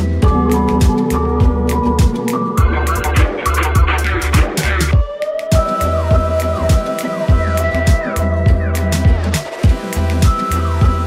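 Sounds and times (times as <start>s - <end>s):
held bass: 0.0s - 5.0s
sustained synth notes: 0.2s - 5.1s
kick drum beat: 0.2s - 11.0s.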